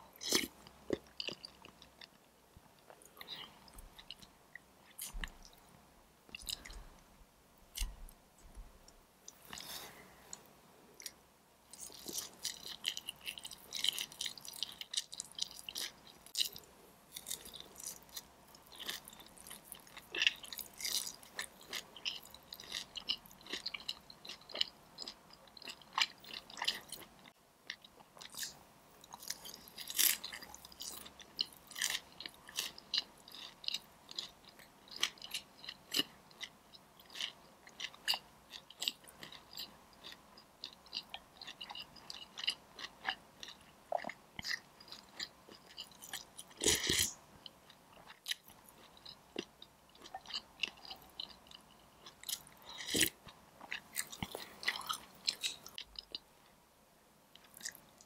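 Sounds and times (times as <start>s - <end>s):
chewing crispy fried chicken: 11.0s - 56.3s, 57.3s - 58.0s.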